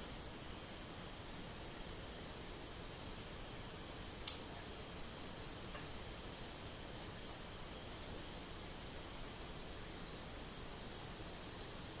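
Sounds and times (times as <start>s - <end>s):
faint background hiss: 0.0s - 12.0s
faint clicks: 4.2s - 4.5s.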